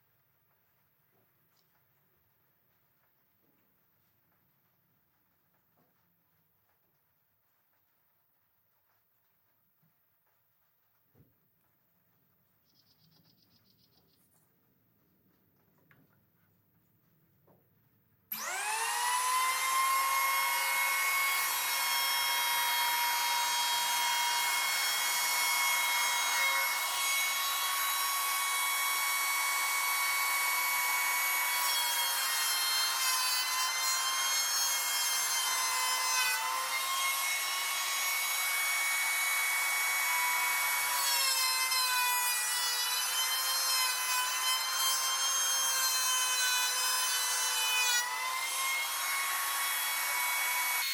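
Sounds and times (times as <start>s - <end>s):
electric hand planer whining: 18.3s - 50.9s
planer shaving wood: 18.3s - 50.9s.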